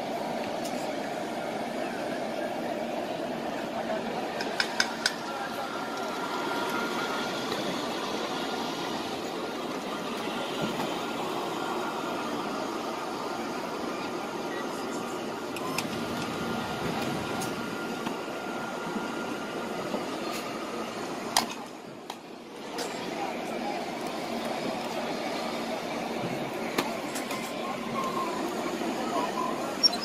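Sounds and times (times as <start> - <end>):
crowd noise: 0.0 - 30.0.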